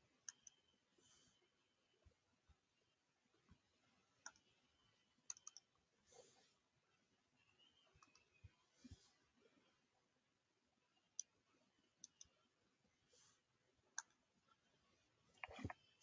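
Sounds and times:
faint computer mouse clicks: 5.3 - 5.7, 8.0 - 8.5, 12.0 - 12.4.

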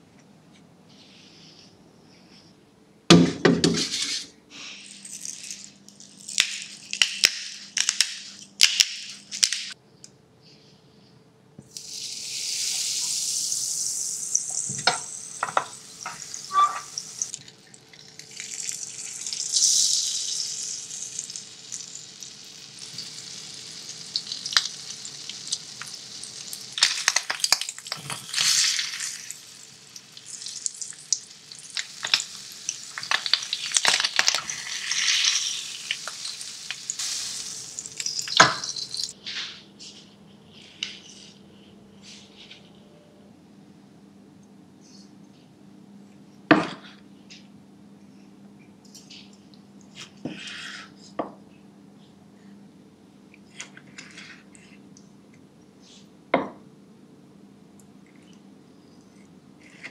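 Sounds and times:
faint machine hum: 0.0 - 59.9
water spraying: 18.4 - 39.1.

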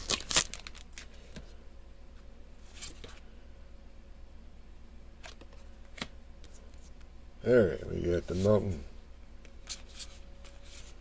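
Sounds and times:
soft rustling of cards: 0.0 - 3.4, 7.9 - 11.0
low room hum: 0.0 - 11.0.

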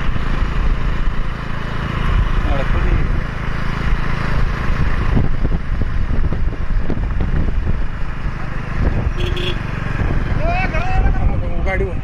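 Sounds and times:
vehicle engine running: 0.0 - 12.0
wind buffeting microphone: 3.8 - 12.0.

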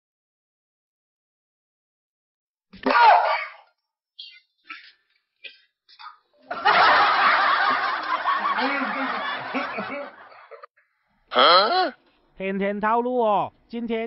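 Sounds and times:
person laughing: 6.6 - 10.7.

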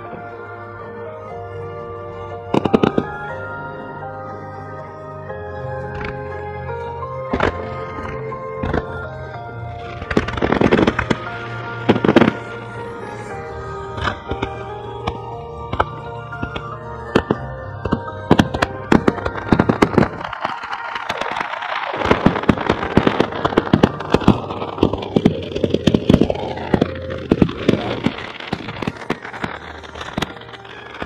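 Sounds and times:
fireworks shells bursting: 7.3 - 31.0.

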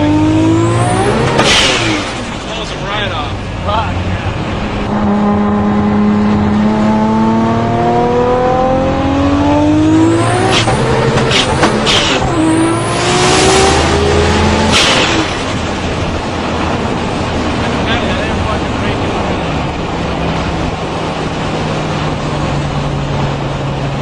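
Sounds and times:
sports car engine accelerating: 0.0 - 24.0.

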